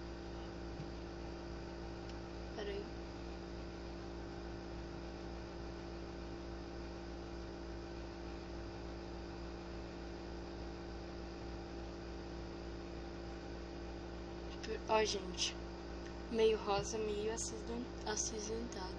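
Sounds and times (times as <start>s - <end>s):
electrical hum: 0.0s - 18.9s.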